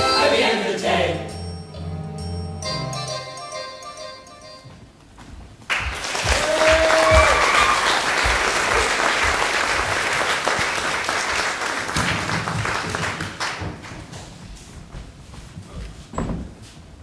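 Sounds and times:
crowd cheering: 0:05.7 - 0:13.1
audience applause: 0:05.7 - 0:14.0.

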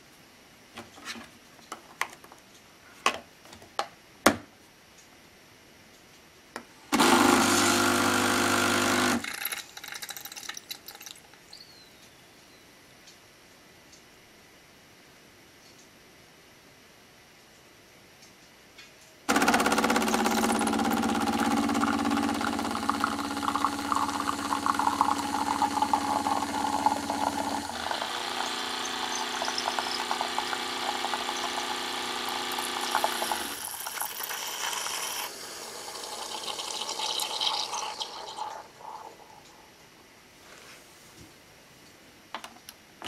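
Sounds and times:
coffee machine hiss: 0:06.9 - 0:09.5, 0:19.3 - 0:39.2
coffee machine pump humming: 0:06.9 - 0:11.2, 0:19.3 - 0:39.5.

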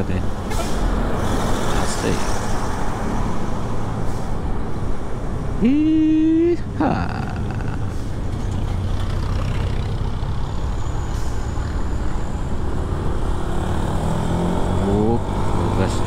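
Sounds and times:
highway traffic rumble: 0:00.0 - 0:16.0
engine revving up: 0:12.9 - 0:16.0.

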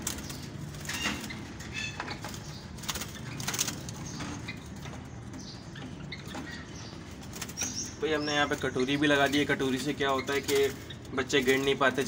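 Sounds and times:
doves flapping wings in a cage: 0:00.0 - 0:01.5, 0:02.2 - 0:04.8, 0:07.1 - 0:07.8.

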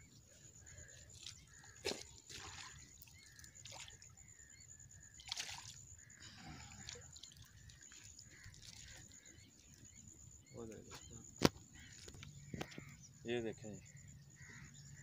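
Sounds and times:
fish splashing in shallow water: 0:00.3 - 0:10.5.

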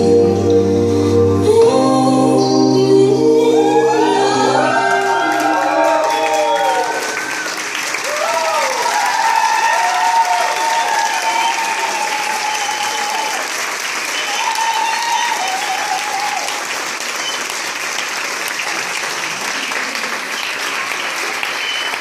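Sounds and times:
voices cheering: 0:03.5 - 0:16.8
audience applauding: 0:04.6 - 0:22.0.

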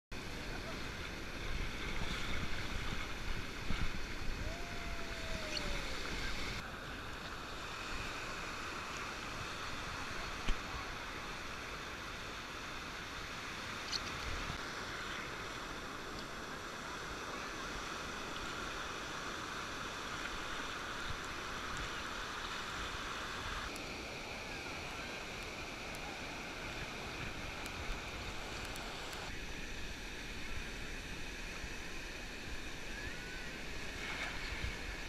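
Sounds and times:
ocean surf breaking: 0:00.2 - 0:13.7.

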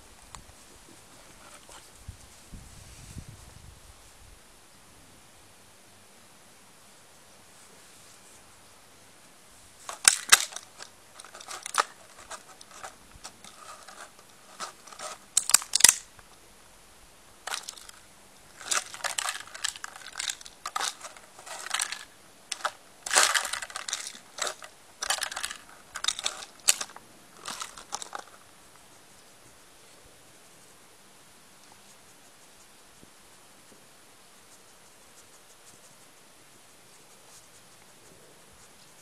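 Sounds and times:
plastic bottle crinkling and clattering: 0:09.9 - 0:16.1, 0:17.4 - 0:18.0, 0:18.6 - 0:28.4.

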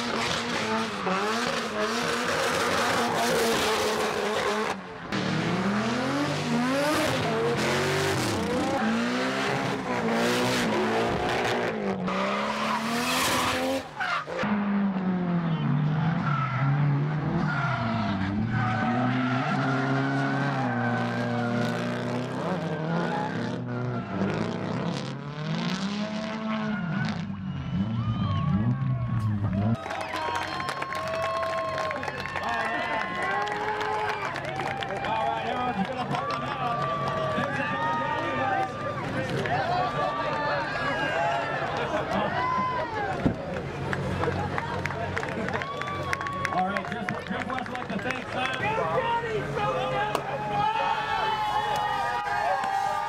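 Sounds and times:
car engines revving: 0:00.0 - 0:29.8, 0:31.2 - 0:53.0.

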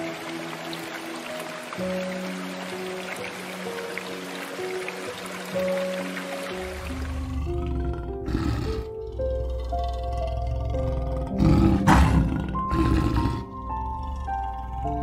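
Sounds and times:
background music of held notes: 0:00.0 - 0:15.0
lion roaring: 0:06.9 - 0:15.0.

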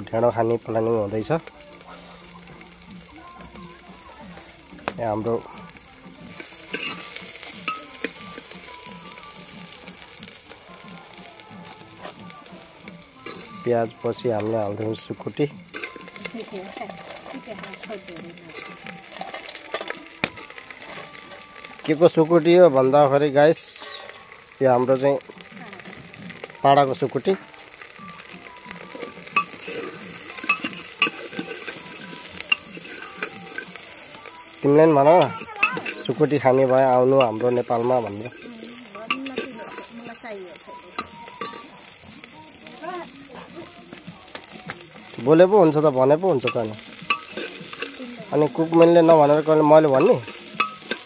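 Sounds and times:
onions sizzling in a pot: 0:00.0 - 0:51.0
metal spoon clinking on pan: 0:06.3 - 0:08.5, 0:15.7 - 0:20.5, 0:28.9 - 0:34.2, 0:34.9 - 0:41.8, 0:46.4 - 0:51.0.

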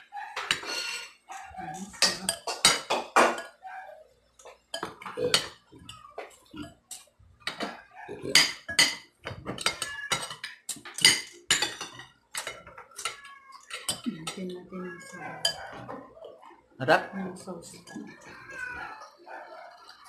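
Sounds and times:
cutlery clinking on ceramic plates: 0:00.2 - 0:03.7, 0:04.4 - 0:16.4.

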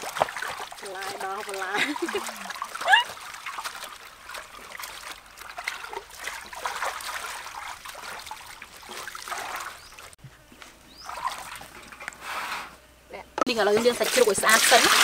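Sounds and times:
water splashing in metal basin: 0:00.0 - 0:10.2, 0:11.0 - 0:12.1, 0:13.6 - 0:15.0.

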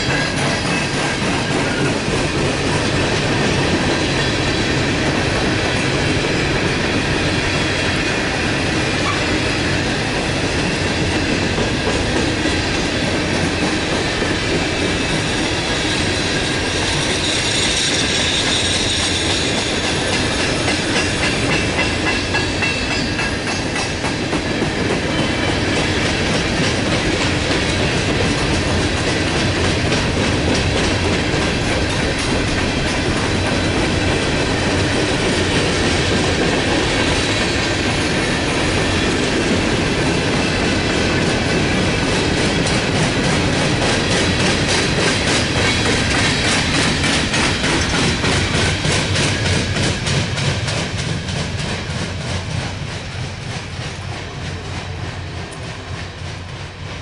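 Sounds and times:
freight train wheels clacking over rail joints: 0:00.0 - 0:57.0
high wheel squeal: 0:15.0 - 0:20.7.

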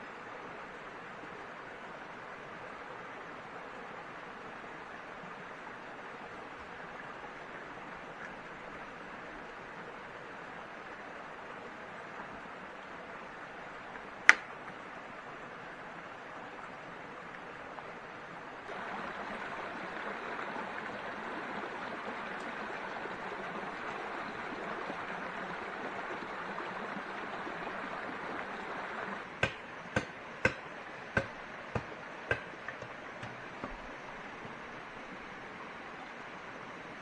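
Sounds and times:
rushing water: 0:00.0 - 0:37.0
sharp knocks: 0:29.4 - 0:30.6, 0:31.2 - 0:34.6.

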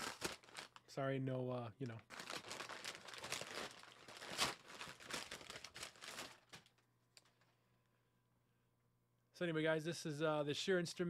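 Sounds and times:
packaging crinkling: 0:00.0 - 0:00.9, 0:02.1 - 0:07.6.

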